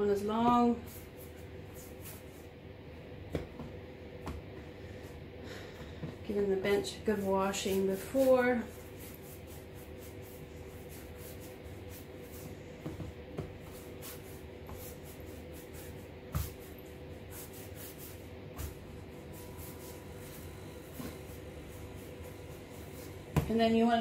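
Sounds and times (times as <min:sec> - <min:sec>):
faint steady hum: 0:00.0 - 0:24.0
hands rolling dough on board: 0:07.0 - 0:23.7.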